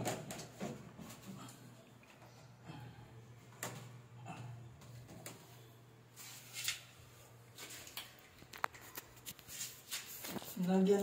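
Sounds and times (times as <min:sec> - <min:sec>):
steady low hum: 0:00.2 - 0:11.0.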